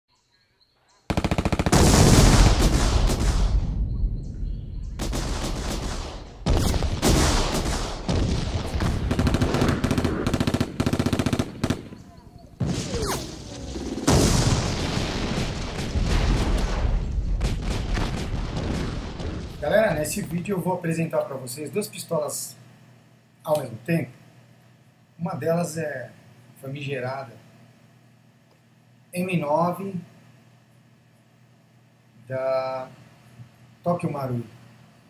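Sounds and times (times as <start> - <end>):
automatic gunfire bursts: 1.1 - 3.6, 5.0 - 14.3.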